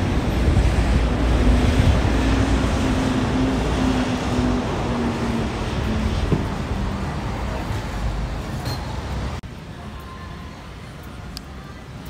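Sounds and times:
wind buffeting microphone: 0.0s - 8.4s
street traffic rumble: 0.0s - 12.0s.

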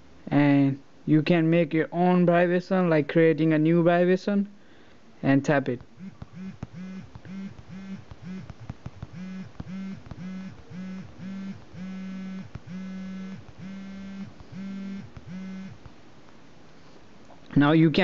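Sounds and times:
phone vibration buzzing: 5.8s - 15.9s.

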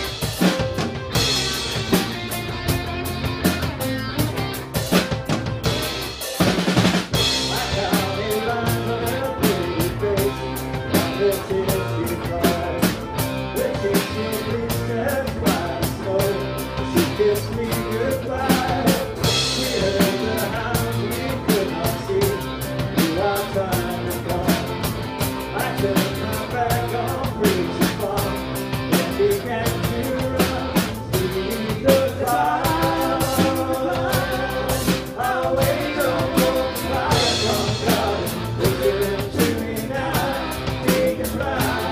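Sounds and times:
rock band playing: 0.0s - 41.9s.

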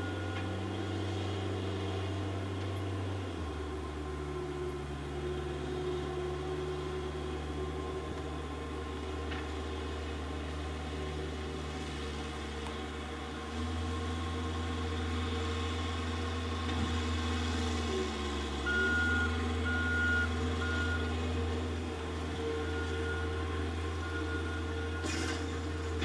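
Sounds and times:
heavy machine engine droning: 0.0s - 26.0s.

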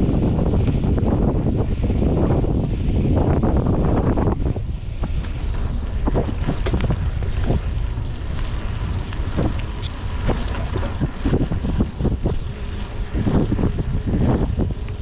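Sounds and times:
bike rolling over pavement: 0.0s - 15.0s
wind on microphone: 0.0s - 15.0s
bike clicks and knocks: 4.8s - 15.0s.

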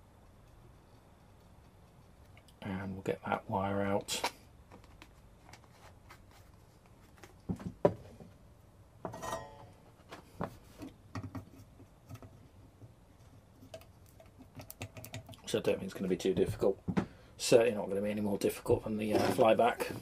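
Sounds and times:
small clicks and taps of tools: 13.6s - 15.5s.

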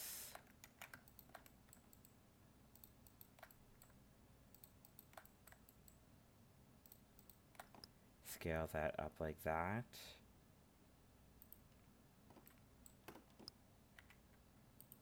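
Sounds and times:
mouse and keyboard clicks: 0.3s - 2.1s, 2.8s - 6.0s, 6.8s - 7.9s, 11.4s - 14.2s, 14.8s - 15.0s.

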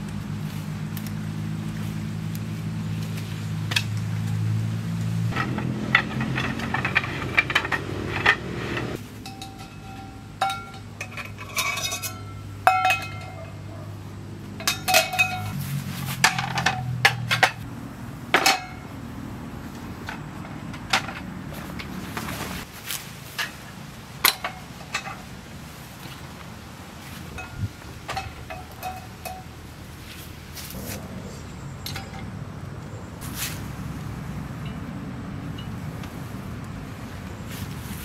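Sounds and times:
metallic clinks and knocks: 5.3s - 13.8s, 14.5s - 15.6s, 16.2s - 17.6s, 27.4s - 29.6s, 31.7s - 32.4s.

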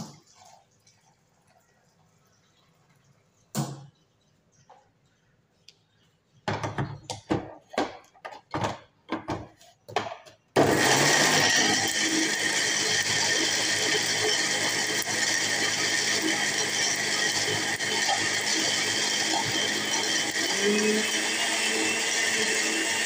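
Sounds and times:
mixer grinder motor running: 10.6s - 23.0s.

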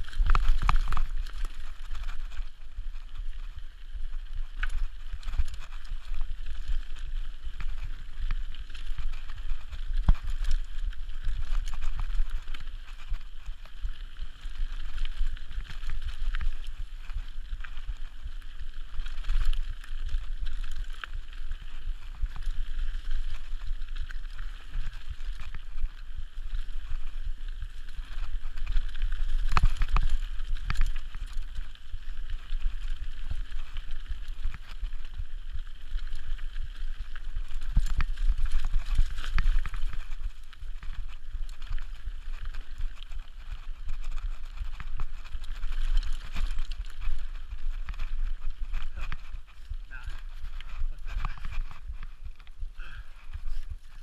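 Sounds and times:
bike tyres rattling on dirt: 0.0s - 54.0s
wind rumble on microphone: 0.0s - 54.0s.

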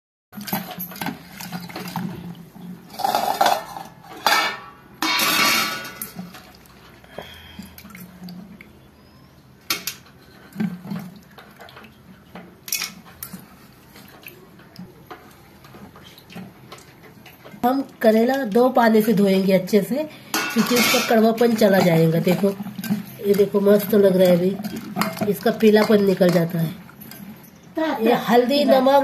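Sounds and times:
steel bowl clinking: 16.7s - 29.0s.

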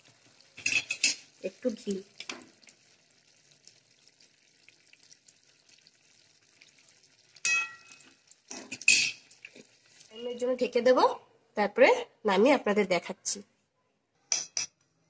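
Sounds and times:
curry simmering and sizzling: 0.0s - 11.1s
metal spoon striking pan: 7.4s - 8.0s, 14.3s - 14.7s.

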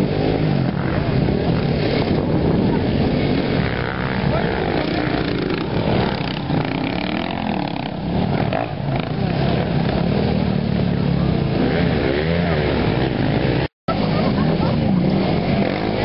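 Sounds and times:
dirt bike engines revving: 0.0s - 16.0s.

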